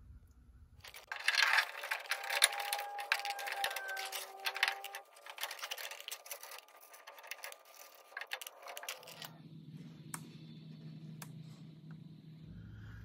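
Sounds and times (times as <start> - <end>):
faint low hum: 0.0 - 13.0
metal clicks and scrapes: 0.8 - 9.3.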